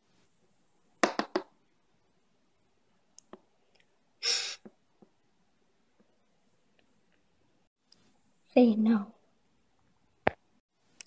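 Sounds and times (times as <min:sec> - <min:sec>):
short breathy burst: 0:04.2 - 0:04.7.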